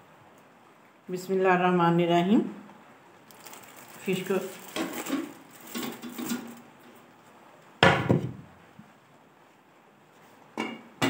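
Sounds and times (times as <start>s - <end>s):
metal pot clanking: 4.7s - 6.6s.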